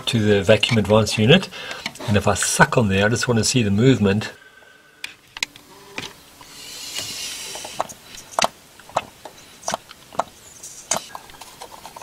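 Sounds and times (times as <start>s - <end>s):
breathy hiss of air through pipe: 1.5s - 2.0s, 6.4s - 8.3s.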